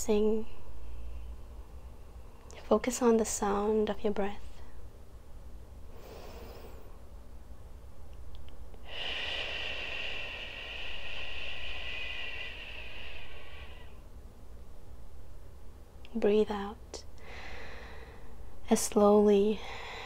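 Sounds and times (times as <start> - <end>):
woman breathing into microphone: 8.8 - 14.0.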